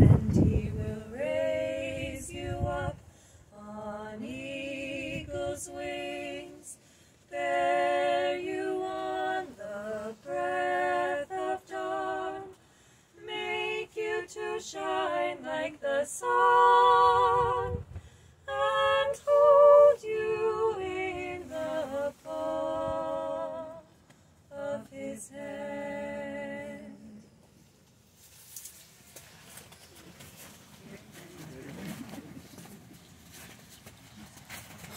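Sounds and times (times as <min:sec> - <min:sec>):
women singing a cappella: 0:00.0 - 0:27.5.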